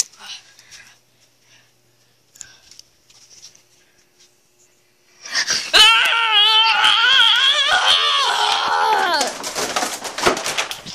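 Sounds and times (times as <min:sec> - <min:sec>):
person wailing: 0:05.7 - 0:09.4.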